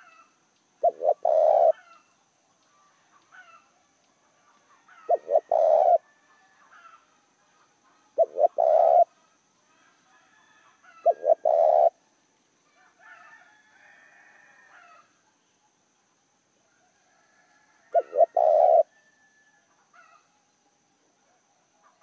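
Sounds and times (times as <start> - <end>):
dove cooing: 0.0 - 2.0, 4.8 - 6.1, 7.9 - 9.2, 10.9 - 12.0, 17.9 - 18.9.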